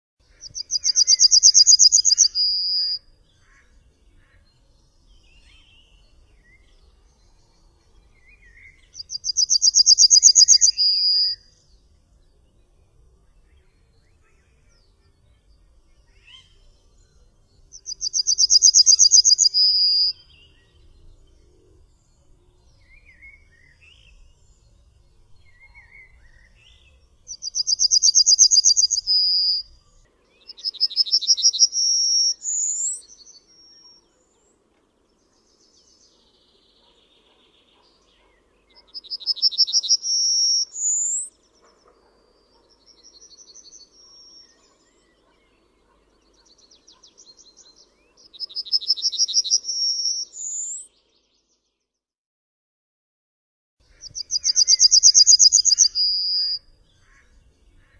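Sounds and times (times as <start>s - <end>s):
yellowhammer singing: 0.2s - 41.8s, 42.4s - 51.6s, 54.0s - 57.9s.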